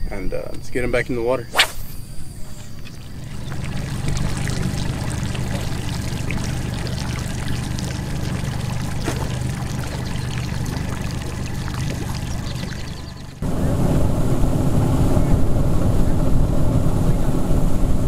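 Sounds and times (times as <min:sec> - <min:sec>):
boat motor drone: 0:02.2 - 0:18.0
water splashing against hull: 0:02.3 - 0:13.4.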